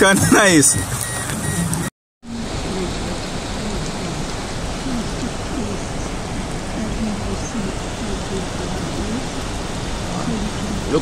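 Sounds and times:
heavy rain: 1.3 - 11.0
rushing floodwater: 2.3 - 11.0.

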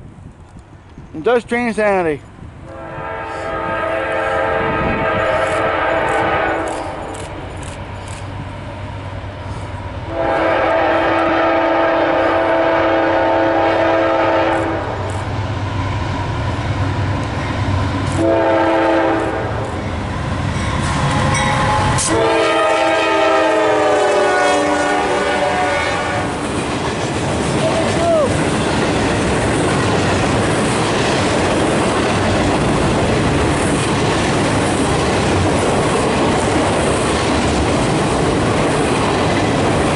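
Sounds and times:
locomotive air horn blowing: 2.7 - 7.1, 10.1 - 15.1, 18.1 - 19.7, 21.0 - 26.4.

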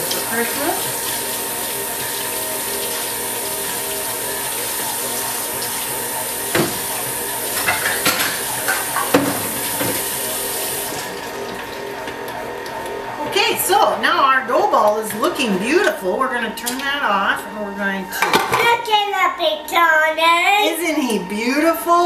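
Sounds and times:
tap water running into sink: 0.0 - 12.8
stand mixer humming: 0.0 - 19.0
dishes knocking: 6.5 - 6.9, 7.6 - 10.0, 18.2 - 18.8.

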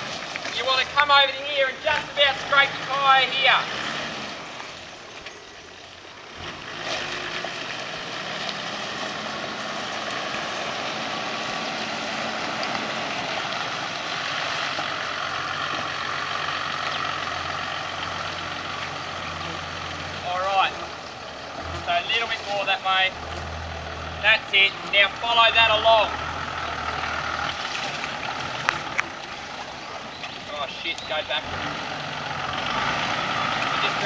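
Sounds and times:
water washing around wheels: 0.0 - 34.0.

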